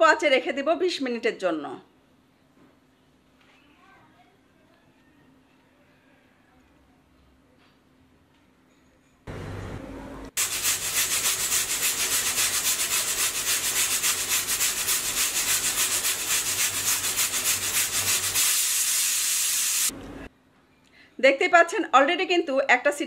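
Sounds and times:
pressure cooker whistling hiss: 10.4 - 19.9.

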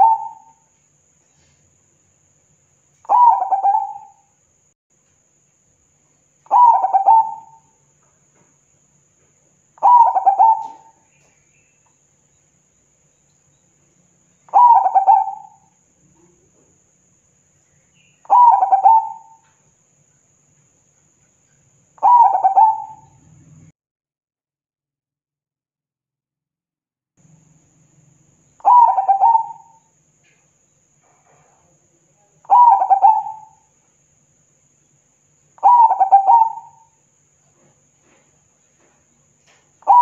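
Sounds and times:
dove cooing: 0.0 - 0.6, 3.0 - 4.2, 6.4 - 7.7, 9.8 - 11.4, 14.5 - 16.5, 18.2 - 19.5, 22.0 - 23.4, 28.6 - 29.8, 32.5 - 33.6, 35.6 - 37.0.

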